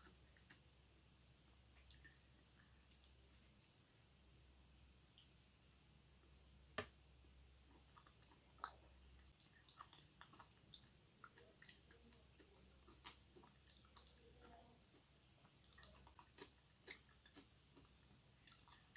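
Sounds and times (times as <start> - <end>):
wet chewing mouth sounds: 7.7 - 18.9.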